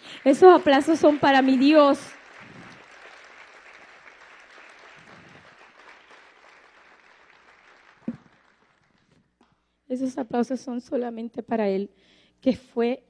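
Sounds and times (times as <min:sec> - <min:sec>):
congregation applauding: 0:00.0 - 0:09.2.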